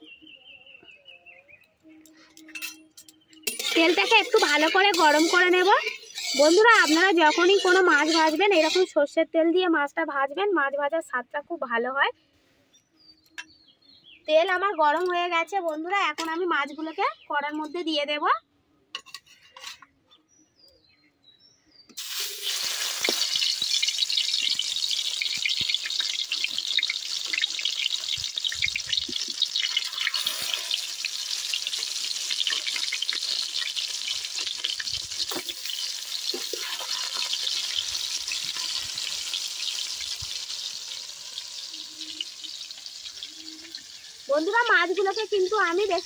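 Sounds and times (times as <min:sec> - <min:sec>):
fish frying in hot oil: 0:03.6 - 0:08.9, 0:22.0 - 0:46.0.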